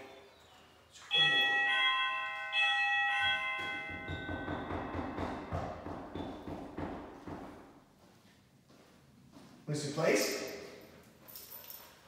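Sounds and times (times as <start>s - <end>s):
electronic doorbell chime: 1.0s - 5.8s.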